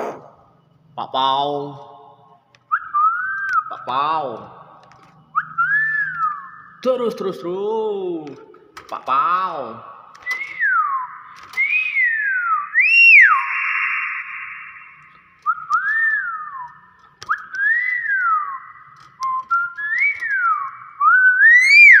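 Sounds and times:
myna whistles: 10.2 - 16.7, 17.3 - 22.0.

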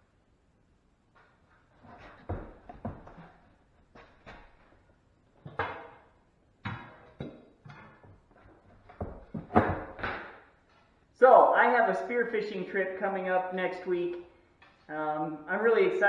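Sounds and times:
knocks and thuds: 6.6 - 10.4.

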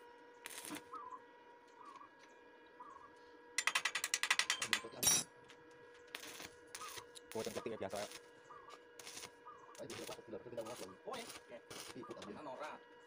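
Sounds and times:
welding arc crackling: 0.4 - 0.9, 6.1 - 8.3, 9.0 - 12.2.

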